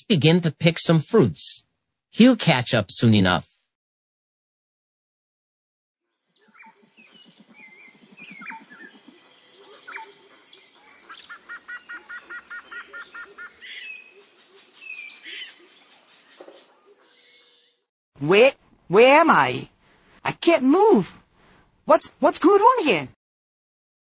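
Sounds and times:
birds chirping and whistling: 6.1s - 17.9s.

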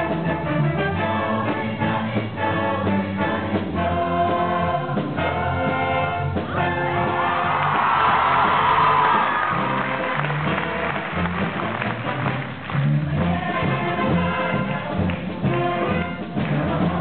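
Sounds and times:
ensemble singing in chorus: 0.0s - 9.8s, 12.8s - 17.0s
live rock and roll band: 0.0s - 17.0s
audience cheering and whooping: 7.0s - 12.0s.

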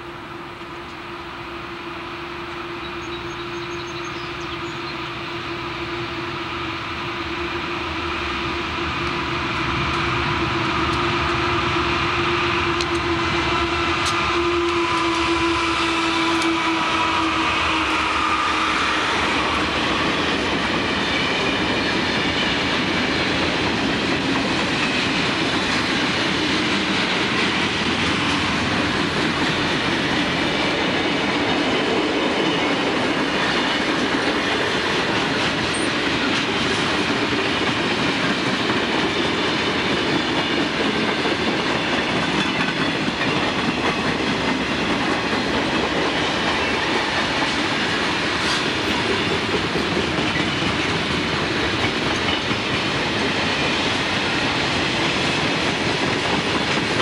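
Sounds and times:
locomotive engine drone: 0.0s - 37.4s
freight cars rumbling over rails: 0.0s - 57.0s.

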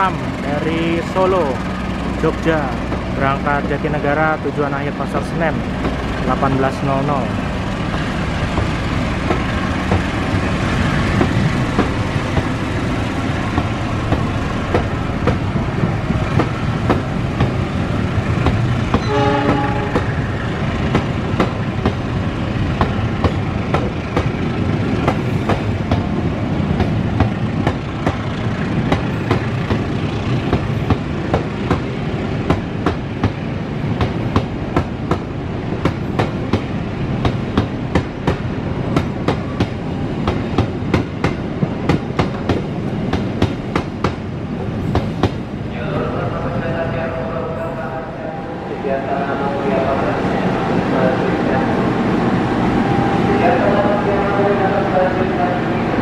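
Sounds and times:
train coaches rumbling past: 0.0s - 56.0s
wheels clacking over rail joints: 7.3s - 45.4s
train horn: 19.0s - 20.2s.

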